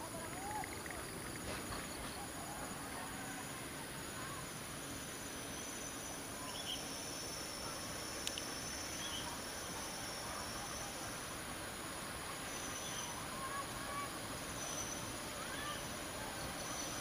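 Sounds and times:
insects trilling: 0.0 - 17.0
outdoor hiss: 0.0 - 17.0
faint bird chirps: 5.2 - 11.3, 12.2 - 17.0.

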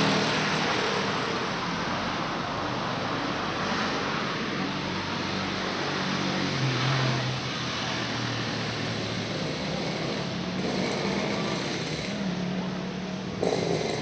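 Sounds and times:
street noise: 0.0 - 14.0
vehicle engine running: 8.8 - 14.0.

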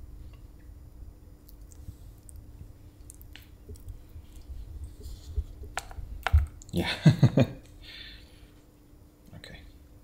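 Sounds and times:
faint hum: 0.0 - 10.0
person chewing: 1.4 - 6.8.

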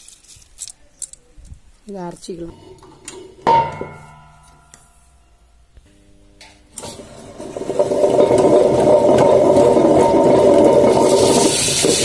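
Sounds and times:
metallic clang: 2.5 - 7.0
wet grinder whirring: 6.8 - 12.0.

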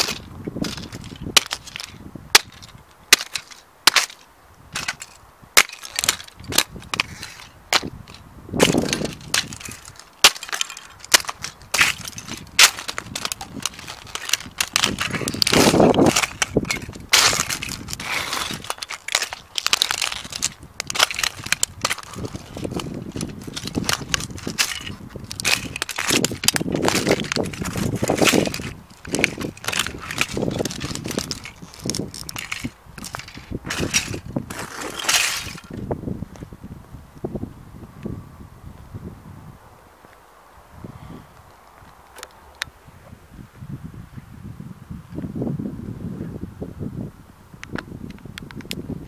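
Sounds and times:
boots cracking plastic pieces: 0.0 - 35.9
fragments crunching on asphalt: 0.0 - 36.5.

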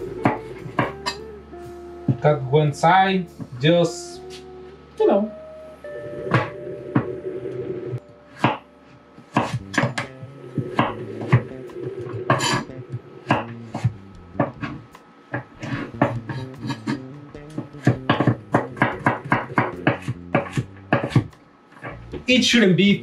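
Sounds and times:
knife cutting carrots on a board: 9.3 - 10.0, 17.8 - 21.3.

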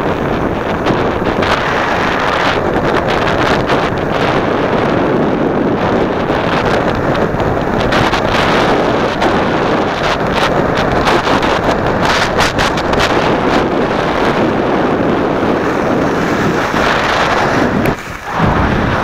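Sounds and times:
wind roaring over microphone: 0.0 - 19.0
skis scraping on snow: 10.5 - 19.0.

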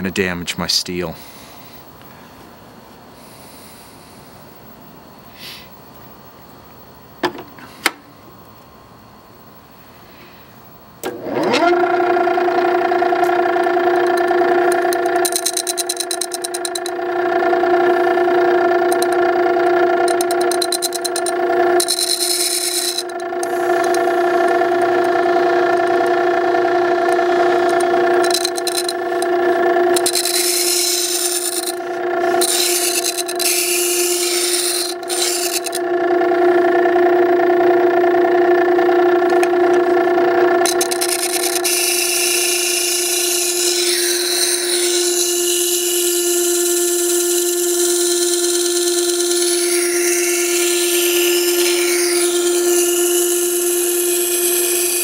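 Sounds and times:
metal blade scraping on grinding wheel: 11.0 - 55.0
sharpening stone motor hum: 11.0 - 55.0.

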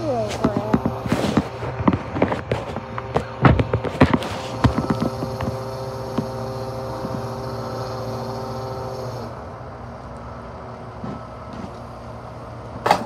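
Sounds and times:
truck mechanical hum and whine: 0.0 - 13.0.

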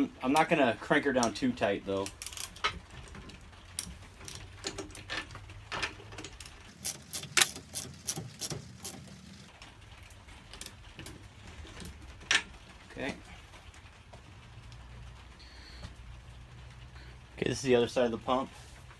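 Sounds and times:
hand ratchet clicking: 6.8 - 9.0.

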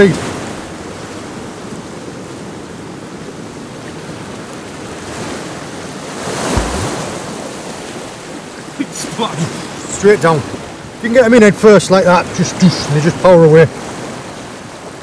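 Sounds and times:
surf washing against rocks: 0.0 - 15.0
low thump: 6.4 - 7.3.

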